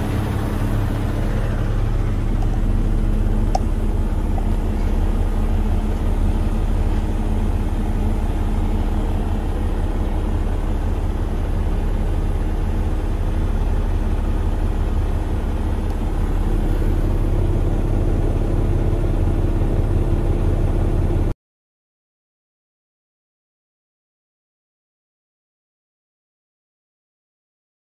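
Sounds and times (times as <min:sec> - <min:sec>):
diesel engine idling: 0:00.0 - 0:21.3.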